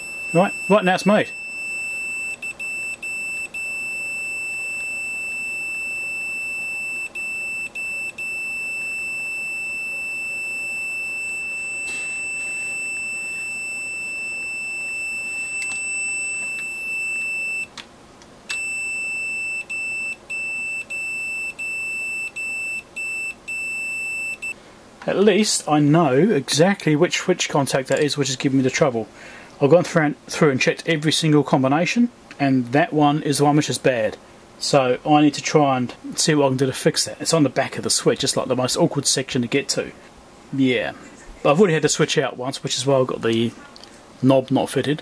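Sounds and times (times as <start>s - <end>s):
multimeter continuity beeper tone: 0.0s - 17.7s, 18.5s - 24.6s.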